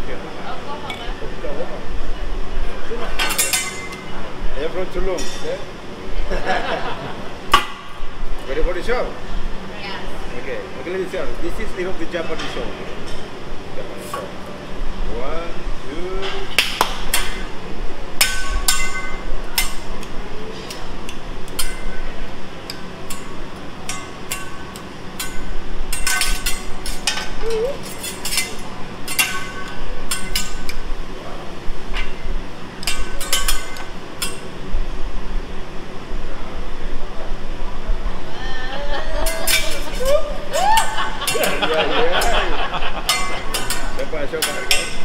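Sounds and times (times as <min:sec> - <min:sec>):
metal spatula clanking on griddle: 0:03.2 - 0:04.1, 0:17.1 - 0:17.5, 0:18.2 - 0:30.8, 0:31.9 - 0:34.5, 0:39.2 - 0:45.0.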